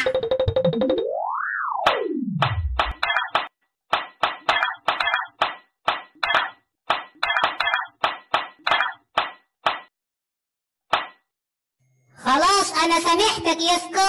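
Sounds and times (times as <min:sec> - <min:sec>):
cartoon punches and thwacks: 0:01.9 - 0:09.9, 0:10.9 - 0:11.3.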